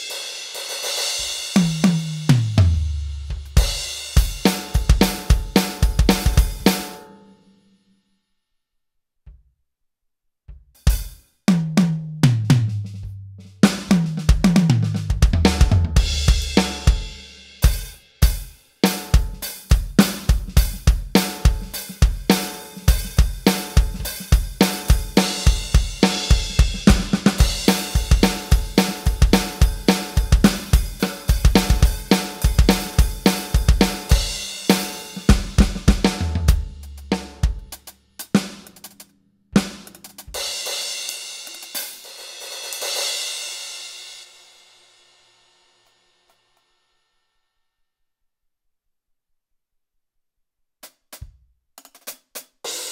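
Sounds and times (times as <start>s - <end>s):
electronic drum kit playing: 0.0s - 7.0s, 10.8s - 39.0s, 39.6s - 42.0s.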